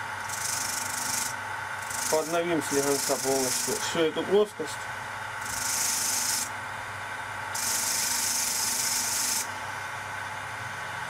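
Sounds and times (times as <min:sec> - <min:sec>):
polishing motor humming: 0:00.2 - 0:04.5, 0:05.4 - 0:06.5
wire brush scratching knife blade: 0:00.3 - 0:03.9.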